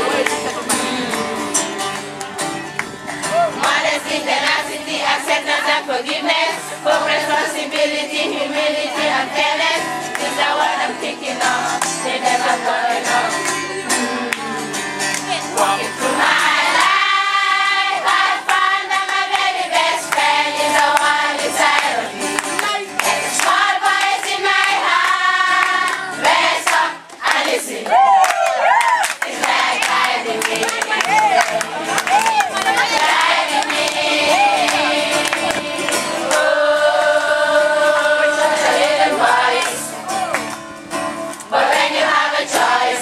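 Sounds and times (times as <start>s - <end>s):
man singing: 0.0s - 1.8s
group singing: 0.0s - 1.9s, 3.3s - 28.2s, 29.0s - 32.0s, 32.7s - 40.2s, 41.4s - 43.0s
strummed acoustic guitar: 0.0s - 27.2s, 29.3s - 43.0s.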